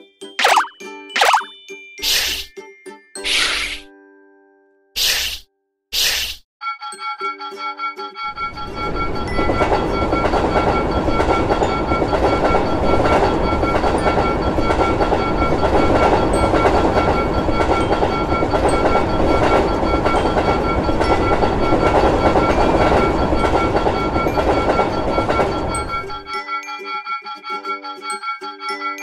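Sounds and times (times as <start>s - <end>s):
train rumble and wheel clatter: 8.3s - 26.3s
crossing bell ringing tones: 8.3s - 26.9s.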